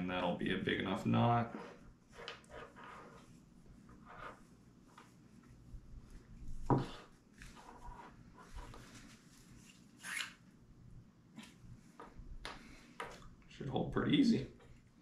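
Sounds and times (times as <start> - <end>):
faint rustling: 1.5 - 10.0.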